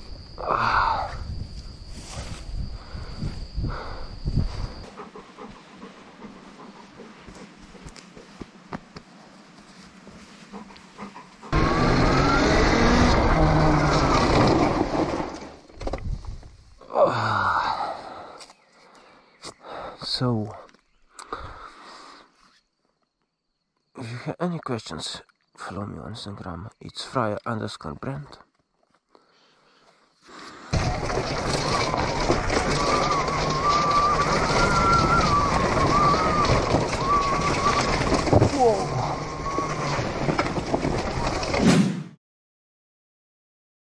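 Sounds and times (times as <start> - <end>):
wind and trail noise: 0.0 - 23.1, 29.8 - 41.6
electric motor whine: 11.5 - 15.7, 30.7 - 40.7.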